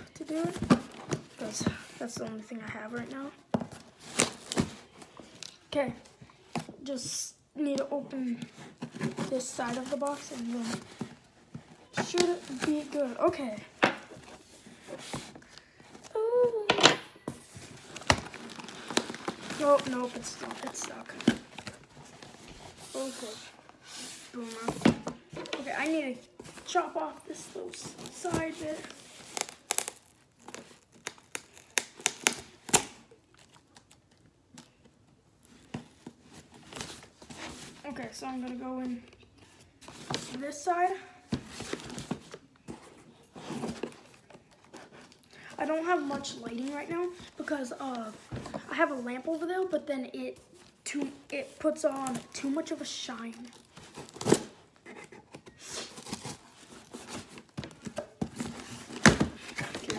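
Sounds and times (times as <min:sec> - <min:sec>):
cardboard tearing and scraping: 0:17.5 - 0:22.2, 0:27.4 - 0:32.9, 0:53.4 - 0:59.9.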